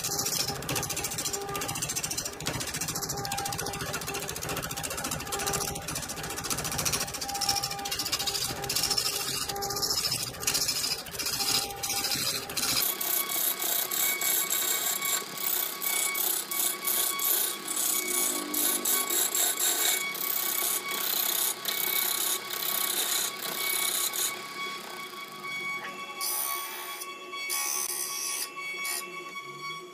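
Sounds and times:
wood lathe tool chattering: 0:00.0 - 0:25.4
scraping with ringing tone: 0:00.0 - 0:29.9.

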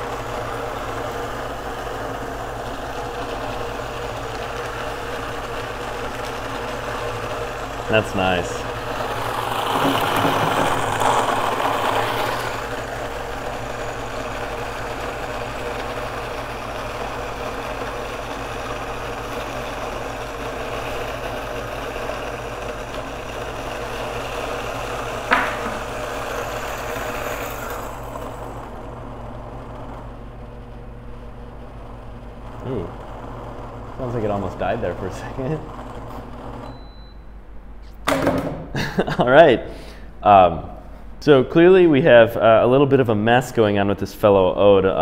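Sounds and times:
coffee grinder grinding beans: 0:00.0 - 0:36.8
sharp knock: 0:25.3 - 0:25.8.

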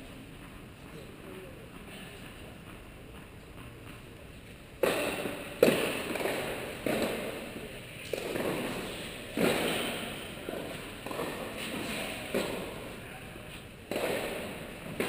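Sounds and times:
tennis ball hits echoing: 0:04.8 - 0:13.0, 0:13.8 - 0:15.0.

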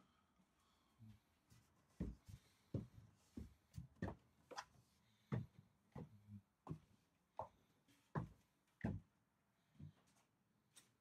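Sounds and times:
footsteps on wooden boards: 0:02.0 - 0:04.2, 0:05.3 - 0:09.1.

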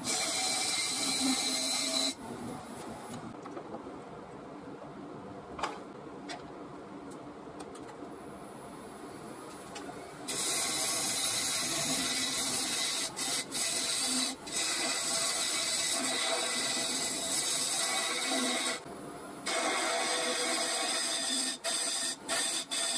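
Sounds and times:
gouge cutting wood hiss: 0:10.3 - 0:18.8, 0:19.4 - 0:22.9
wood lathe running: 0:10.4 - 0:18.8, 0:19.5 - 0:22.9.

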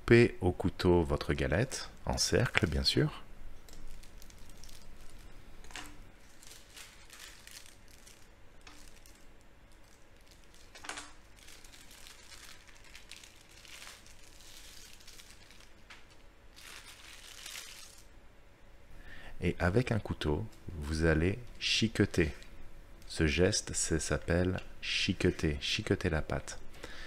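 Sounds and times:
plastic film crinkling: 0:03.7 - 0:18.1.

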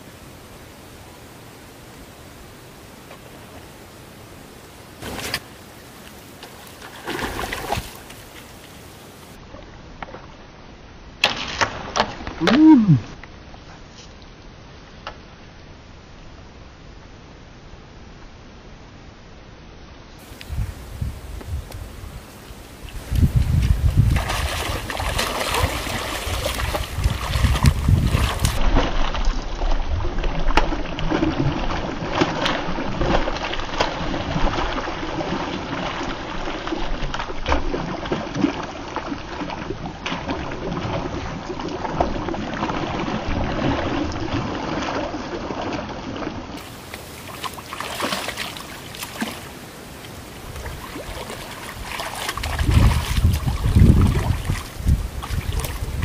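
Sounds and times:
fish thrashing in water: 0:06.8 - 0:08.2, 0:23.3 - 0:49.5, 0:50.5 - 0:56.0.

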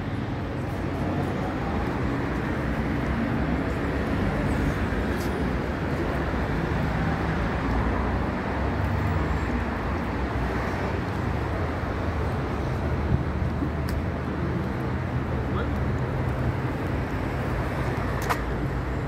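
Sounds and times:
cars passing on street: 0:00.0 - 0:19.0.

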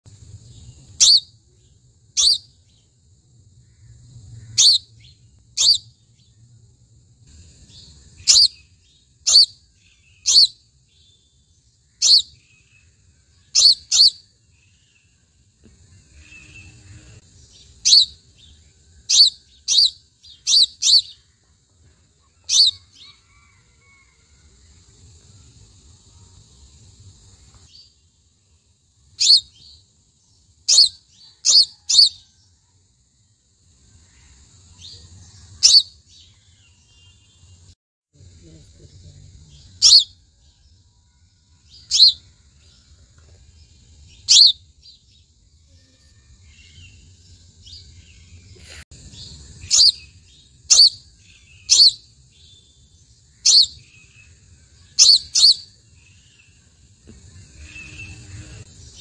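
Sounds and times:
sparrow chirping: 0:00.6 - 0:02.9, 0:03.9 - 0:06.4, 0:07.3 - 0:15.2, 0:16.1 - 0:21.3, 0:22.3 - 0:23.2, 0:29.2 - 0:29.8, 0:30.6 - 0:32.2, 0:34.8 - 0:37.5, 0:39.5 - 0:40.2, 0:41.8 - 0:42.2, 0:44.1 - 0:45.0, 0:47.7 - 0:56.6.

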